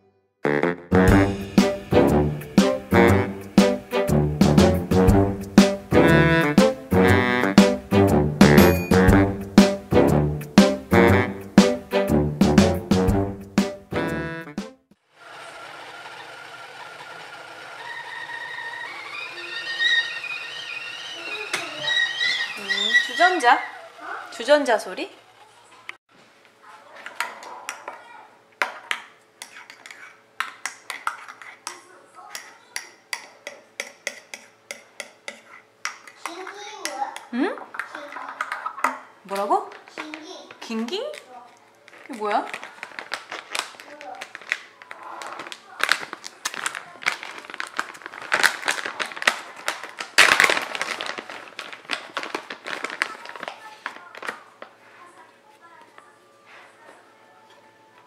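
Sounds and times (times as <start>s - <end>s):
plastic bag crinkling: 39.6s - 55.0s.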